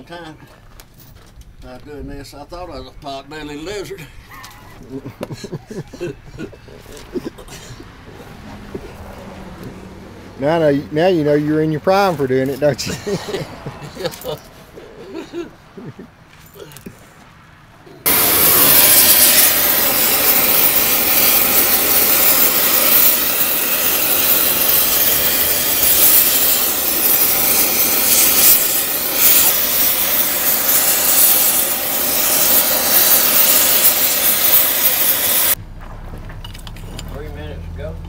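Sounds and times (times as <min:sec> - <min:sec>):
torch flame hissing: 0:18.0 - 0:35.6.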